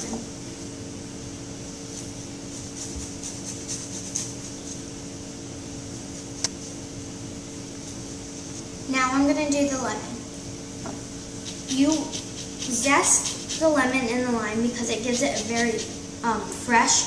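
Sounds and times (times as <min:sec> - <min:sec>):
steady low hum: 0:00.0 - 0:17.0
zester scraping peel: 0:11.4 - 0:14.0, 0:14.8 - 0:16.0.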